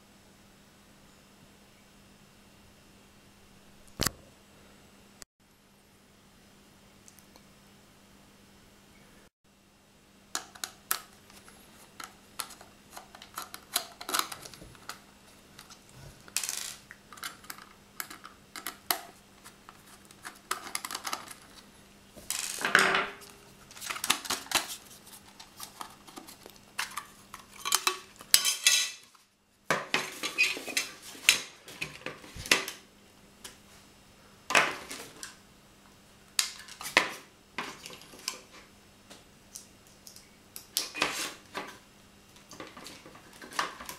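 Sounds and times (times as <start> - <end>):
faint steady hum: 0.0 - 43.9.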